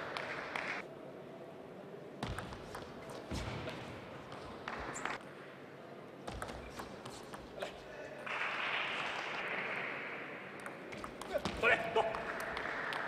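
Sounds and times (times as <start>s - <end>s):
crowd noise: 0.0s - 13.0s
shoes on court: 10.9s - 13.0s.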